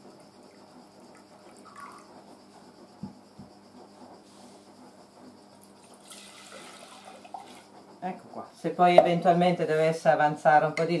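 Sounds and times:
liquid pouring into a jug: 1.1s - 2.1s, 5.8s - 7.6s.

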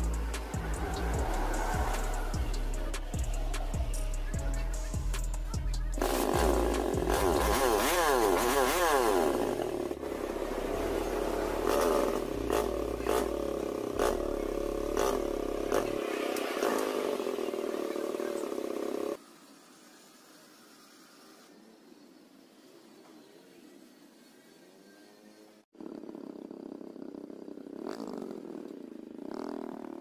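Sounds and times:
motorcycle engine revving: 0.0s - 19.2s, 25.8s - 30.0s.

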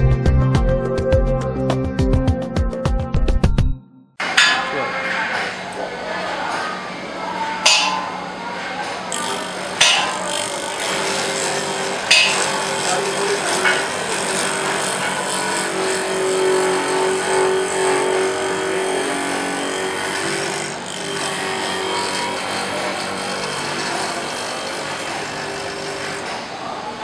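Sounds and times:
grinding wheel on steel: 7.7s - 26.6s.

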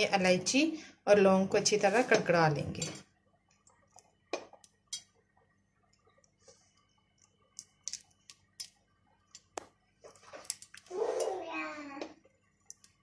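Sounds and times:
spices ticking and crackling in ghee: 2.5s - 10.9s, 12.2s - 13.0s.

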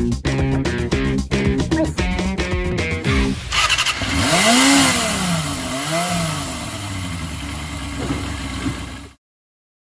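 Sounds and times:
motorcycle engine revving and idling: 2.0s - 9.2s.

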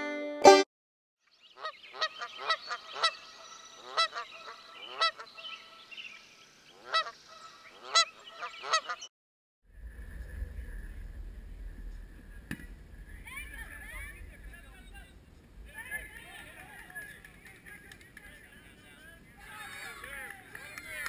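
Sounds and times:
waterfowl honking: 1.6s - 5.9s, 6.7s - 9.1s.

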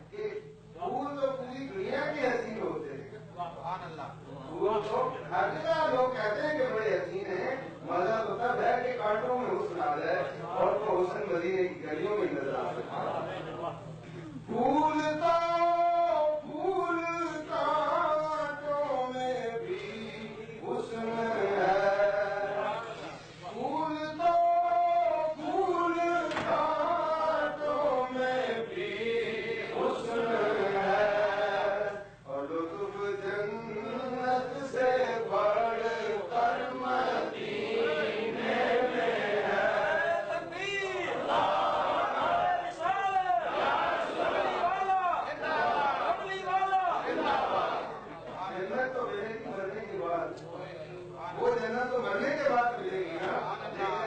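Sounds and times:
man chanting melodically: 14.5s - 41.2s.

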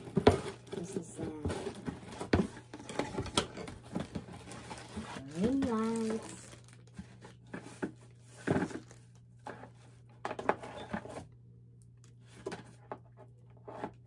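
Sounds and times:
plastic wrapping crinkling: 3.9s - 7.5s.

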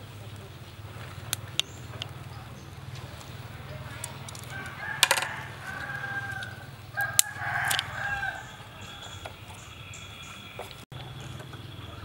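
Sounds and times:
sharp clicks: 3.9s - 8.0s
rooster crowing: 4.3s - 9.4s.

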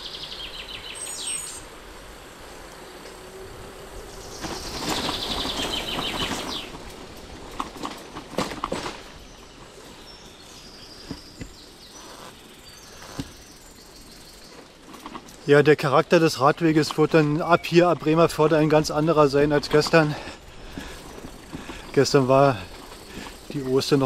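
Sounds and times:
birds chirping: 0.0s - 24.0s
steady outdoor noise: 0.0s - 24.0s
rattling noise: 2.9s - 9.4s, 14.5s - 24.0s.

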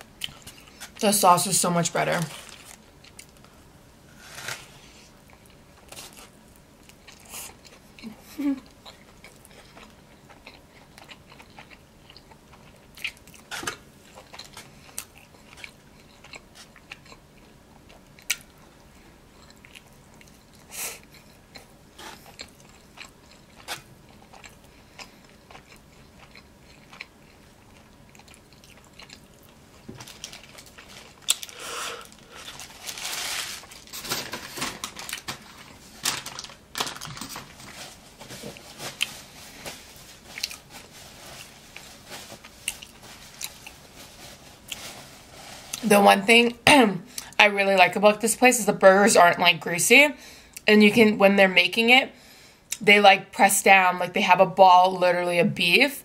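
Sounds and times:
person chewing food: 0.1s - 1.0s, 4.2s - 32.9s, 37.7s - 44.0s.

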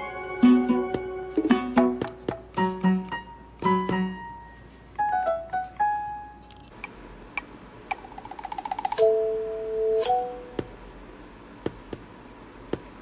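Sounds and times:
light music of short pitched notes: 0.0s - 6.4s.

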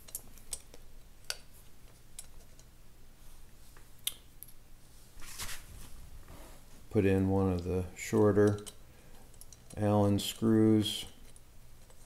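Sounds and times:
small metallic clicks and ticks: 0.0s - 1.5s, 7.2s - 12.0s.

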